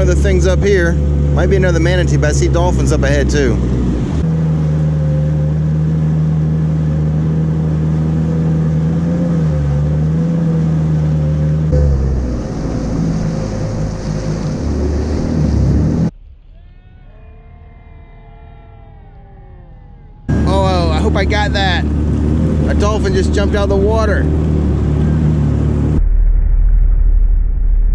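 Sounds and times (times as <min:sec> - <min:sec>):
jet ski engine running: 0:00.0 - 0:16.1, 0:20.2 - 0:26.0.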